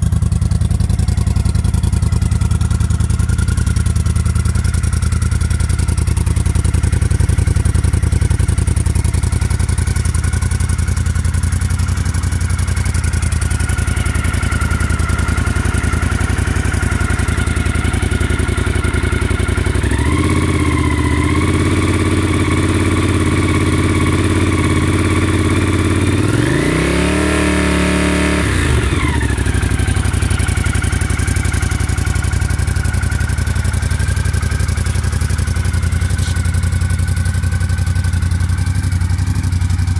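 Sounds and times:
motorcycle engine idling: 0.0 - 39.9
engine revving: 19.1 - 30.1.

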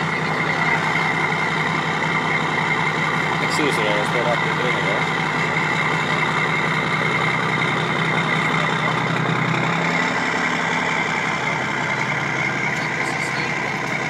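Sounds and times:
diesel truck engine running: 0.0 - 14.0.

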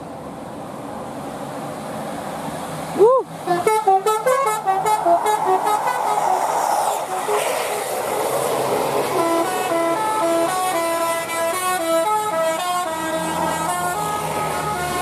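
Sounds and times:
bus passing: 0.0 - 15.0
bus air horn melody: 3.4 - 6.4, 9.1 - 15.0.

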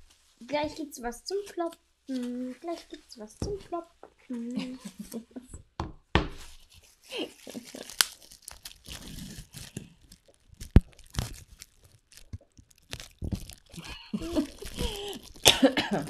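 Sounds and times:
bubble wrap crinkling: 0.0 - 5.2, 6.3 - 16.0
bubble wrap snaps: 6.4 - 16.0.

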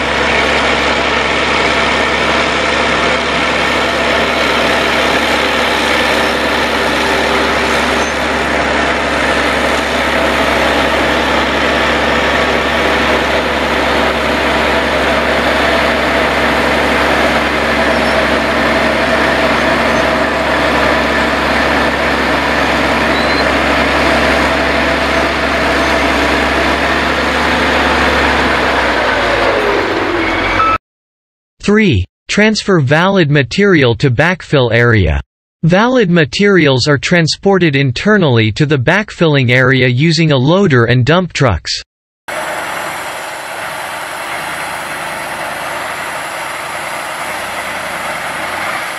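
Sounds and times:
bulldozer diesel engine running: 0.0 - 30.8, 42.3 - 48.9
blade pushing soil: 0.1 - 27.9.

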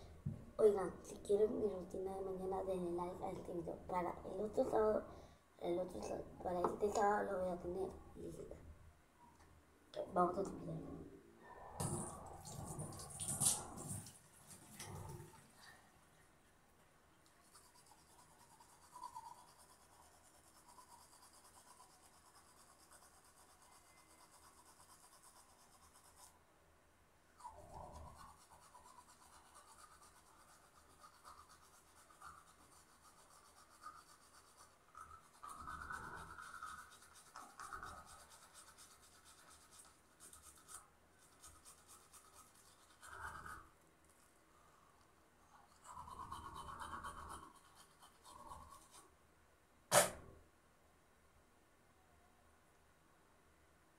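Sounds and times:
hands rubbing face: 11.8 - 14.8.

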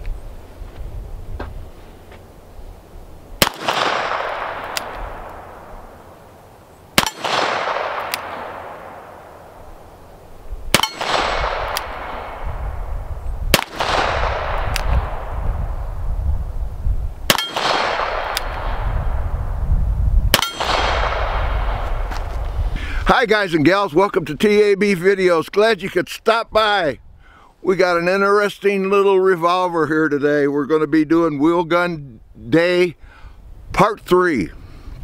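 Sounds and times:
revolver shots with echo: 3.4 - 6.2, 7.0 - 9.6, 10.8 - 12.6, 13.5 - 15.4, 17.3 - 19.2, 20.3 - 21.8.

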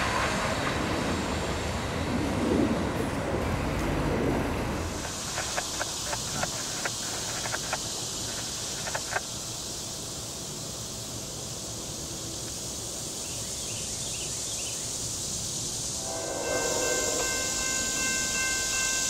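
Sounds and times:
insects droning in trees: 0.0 - 19.0
railroad crossing bell ringing: 16.0 - 19.0.

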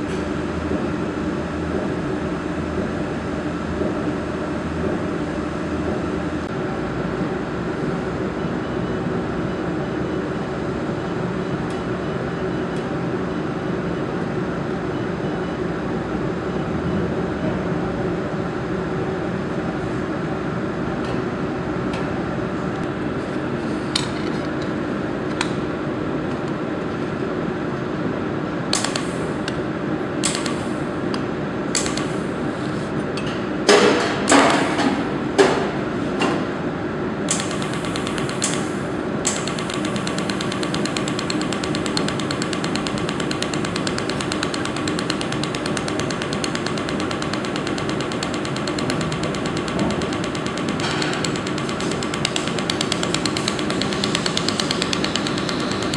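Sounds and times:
laser welder snaps: 28.7 - 29.2, 30.2 - 30.7, 31.8 - 32.2, 37.3 - 55.9
welding machine humming: 28.7 - 29.5, 30.2 - 31.1, 31.7 - 32.4, 37.3 - 55.9.

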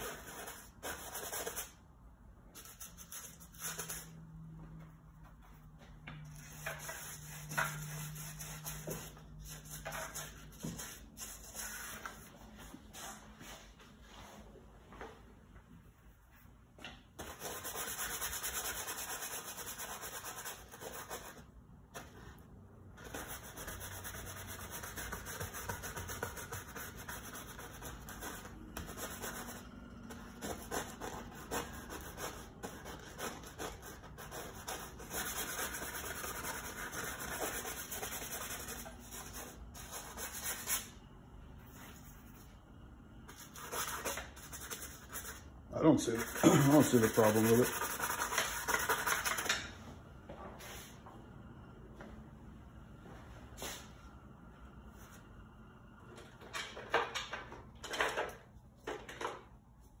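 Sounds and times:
paintbrush scrubbing on canvas: 6.3 - 13.6, 46.0 - 49.3.

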